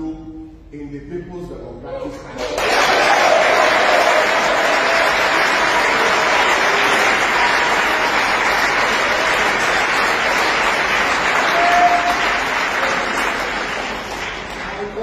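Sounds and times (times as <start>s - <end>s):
crowd applause: 2.4s - 15.0s.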